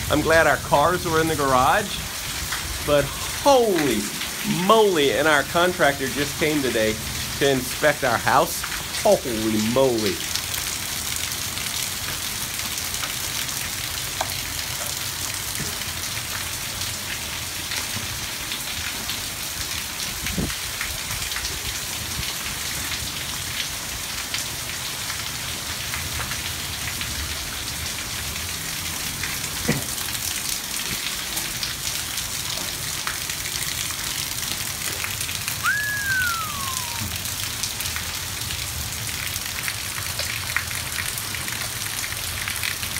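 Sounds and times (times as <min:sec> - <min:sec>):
heavy rain: 0:00.0 - 0:42.9
falling whistle: 0:35.6 - 0:37.2.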